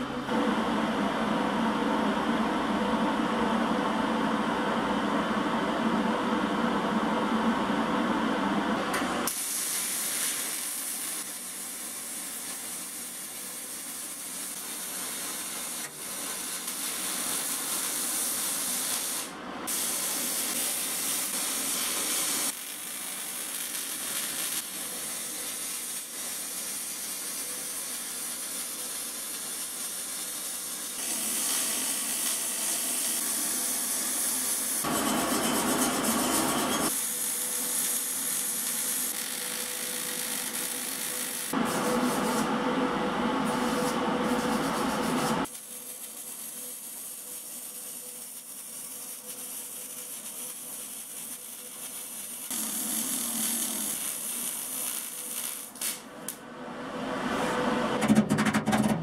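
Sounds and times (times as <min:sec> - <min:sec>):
welding arc crackling hiss: 0:09.2 - 0:42.5, 0:43.4 - 0:56.4.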